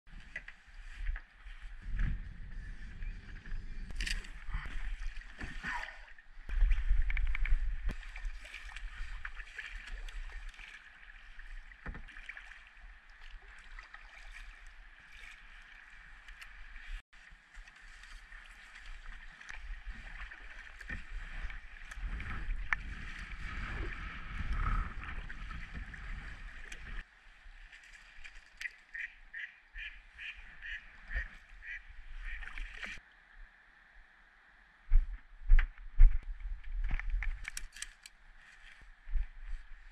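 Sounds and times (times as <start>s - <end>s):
wind rumbling on microphone: 0.1s - 10.6s, 17.8s - 27.1s, 34.9s - 39.9s
kayak paddle strokes: 0.1s - 33.0s
water splashing against kayak hull: 0.1s - 33.0s.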